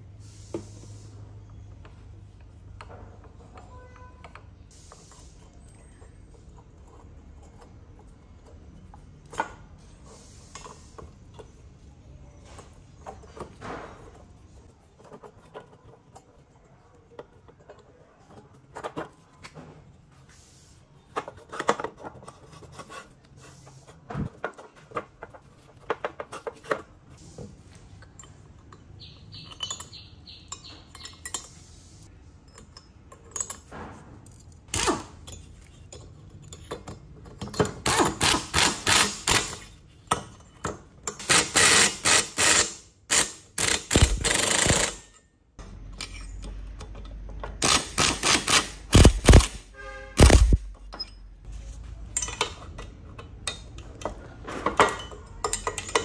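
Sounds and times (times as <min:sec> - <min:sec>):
metal engine parts clinking: 0:27.9 - 0:31.7, 0:32.4 - 0:56.0.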